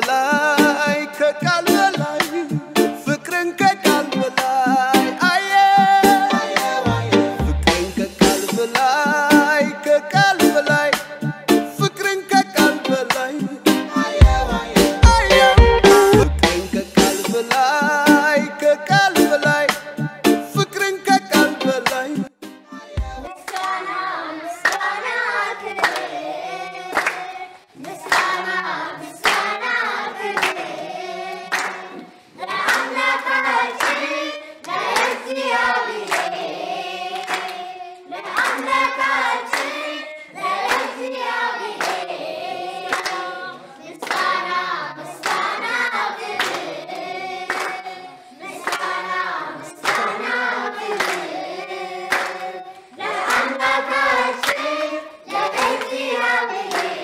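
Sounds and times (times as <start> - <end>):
children singing: 3.8 - 7.4, 13.9 - 16.2, 22.7 - 57.0
hand-clapping: 23.5 - 23.8, 24.6 - 24.9, 25.8 - 26.1, 26.9 - 28.5, 29.2 - 29.5, 30.3 - 30.7, 31.3 - 32.0, 32.6 - 36.4, 37.2 - 37.6, 38.3 - 38.8, 39.5 - 39.8, 40.6 - 41.0, 41.8 - 42.0, 42.9 - 43.3, 44.0 - 44.4, 45.2 - 45.6, 46.4 - 47.9, 48.6 - 49.0, 49.8 - 50.3, 50.9 - 51.3, 52.1 - 52.5, 53.1 - 53.7, 54.4 - 54.7, 55.4 - 57.0.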